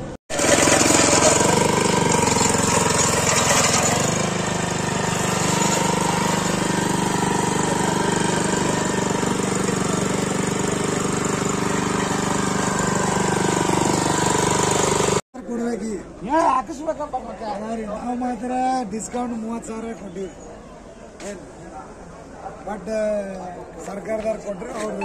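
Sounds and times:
small petrol engine running: 0.3 - 15.2.

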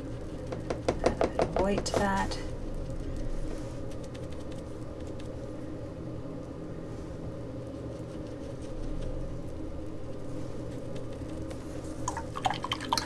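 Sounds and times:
paintbrush dabbing on paper: 0.0 - 2.5, 3.1 - 5.4
low hum: 0.0 - 13.0.

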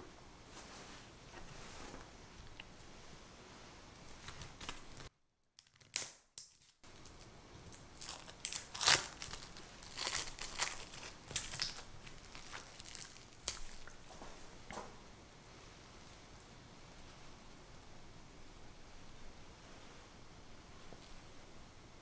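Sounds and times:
cling film crinkling: 4.0 - 14.1.

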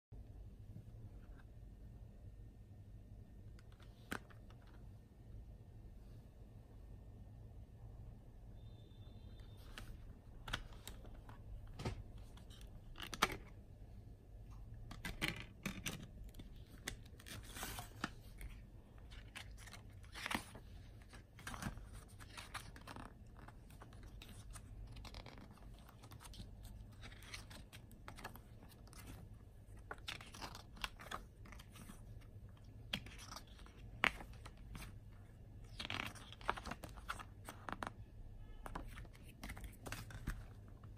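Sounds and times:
low steady hum: 0.1 - 40.9
paper pages rustling: 14.9 - 38.0, 38.6 - 40.9.

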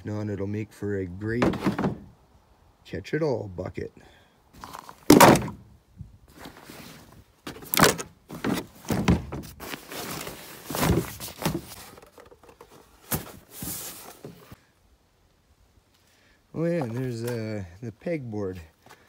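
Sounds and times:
items scraping: 1.4 - 2.1, 6.3 - 14.6
thumps and knocks of objects: 1.4 - 2.1, 5.0 - 5.6, 7.5 - 9.6, 10.7 - 13.5.

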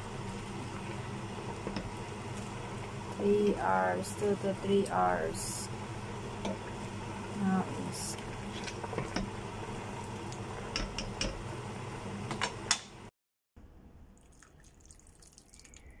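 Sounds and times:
soup bubbling in a pot: 0.0 - 3.2, 5.7 - 12.1, 14.2 - 16.0
faint drips of soup: 14.2 - 16.0.

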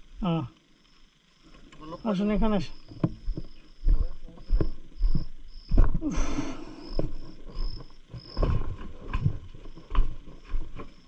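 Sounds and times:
insects chirping: 0.0 - 11.0
footsteps on wooden steps: 2.2 - 11.0.

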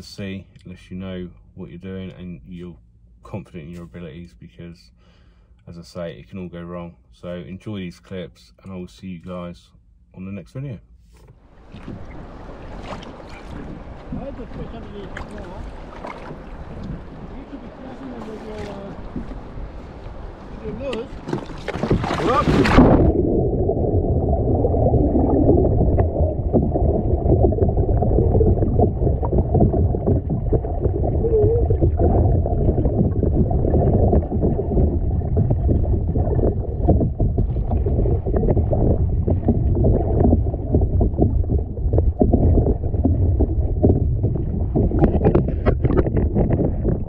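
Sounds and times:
muffled wind and water rushing: 11.4 - 47.0
small knocks and splashes: 11.6 - 17.4, 20.9 - 23.1.

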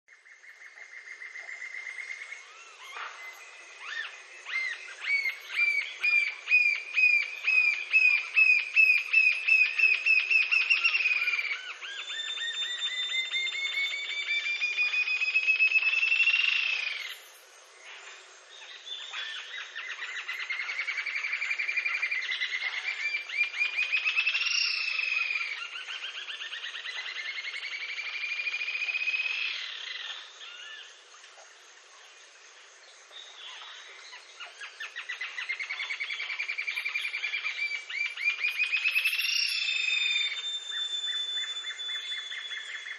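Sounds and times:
bird whistling rising trill: 2.8 - 17.2, 35.4 - 42.9.

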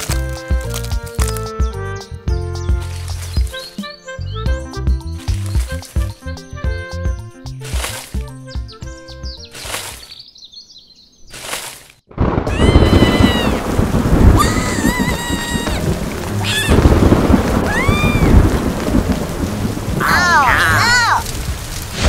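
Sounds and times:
heavy rain: 12.1 - 22.0
thunder: 12.1 - 22.0.

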